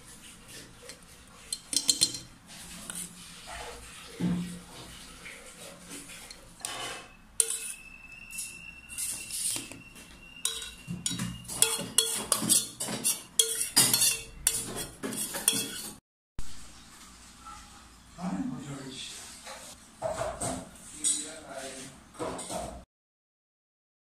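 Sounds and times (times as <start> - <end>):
spoon scraping steel pot: 0.5 - 4.2, 4.8 - 16.0
spoon clinking on glass jar: 1.5 - 2.3, 7.4 - 9.8, 10.4 - 14.7, 15.3 - 15.9.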